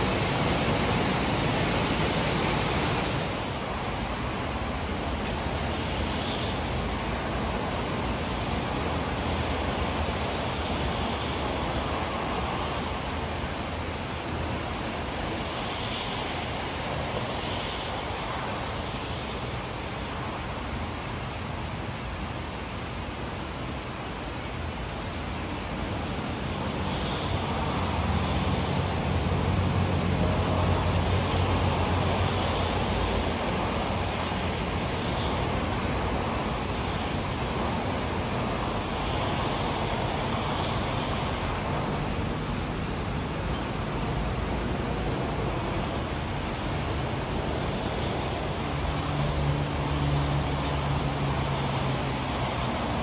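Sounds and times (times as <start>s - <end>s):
rain hissing: 0.0s - 53.0s
vehicle passing on wet road: 25.9s - 53.0s.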